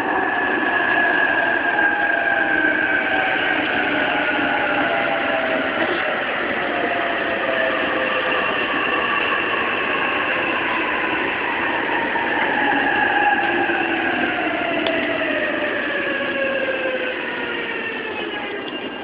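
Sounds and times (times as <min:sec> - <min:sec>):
wheels rumbling on rail: 0:00.0 - 0:19.0.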